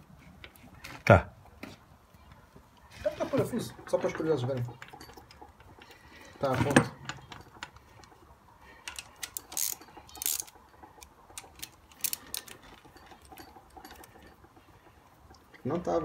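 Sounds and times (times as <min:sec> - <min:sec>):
ratchet wrench metallic clicks: 0:08.8 - 0:12.6.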